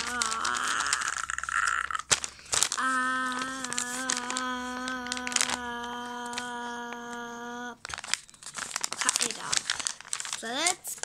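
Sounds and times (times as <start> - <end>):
child holding a long note: 0.0 - 2.0, 2.8 - 7.8
paper rustling and crinkling: 0.0 - 7.2, 7.8 - 11.0.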